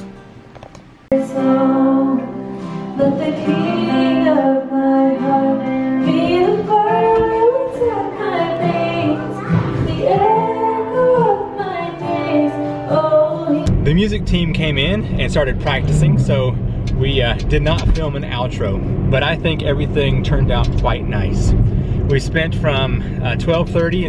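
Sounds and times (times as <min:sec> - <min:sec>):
woman singing long gliding notes: 0:01.1 - 0:13.7.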